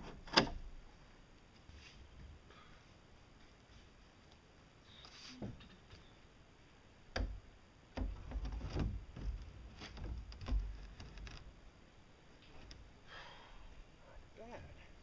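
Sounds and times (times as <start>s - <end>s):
plastic pipe knocking against frame: 8.0s - 9.4s.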